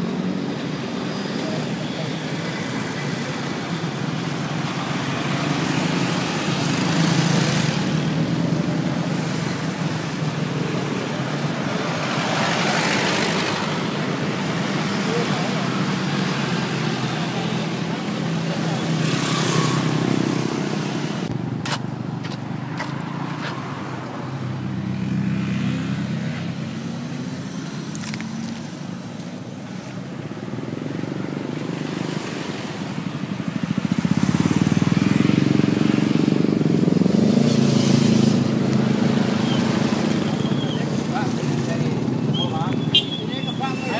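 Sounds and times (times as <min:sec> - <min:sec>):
vehicles passing: 0:00.0 - 0:43.9.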